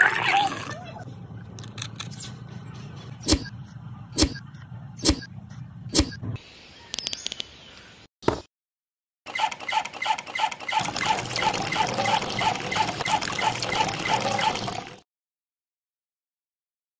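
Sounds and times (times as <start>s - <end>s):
water pouring into metal bucket: 10.8s - 15.0s.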